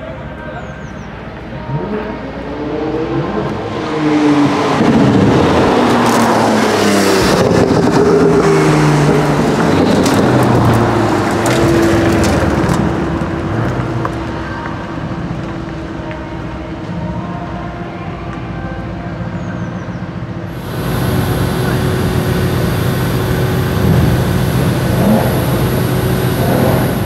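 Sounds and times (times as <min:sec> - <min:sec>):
cars rolling by at low revs: 0:01.5 - 0:16.0
car engine accelerating hard: 0:01.7 - 0:14.3, 0:20.5 - 0:27.0
exhaust crackles and pops: 0:09.1 - 0:15.8, 0:20.5 - 0:27.0.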